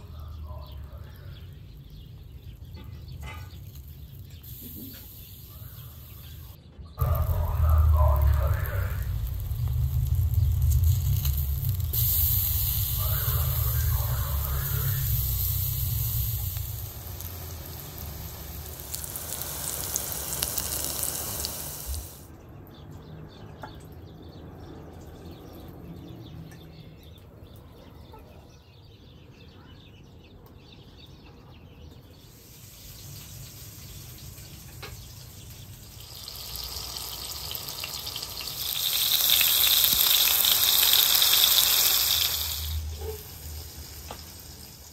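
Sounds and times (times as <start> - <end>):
hot oil sizzling in a pan: 0.0 - 22.3, 32.2 - 44.9.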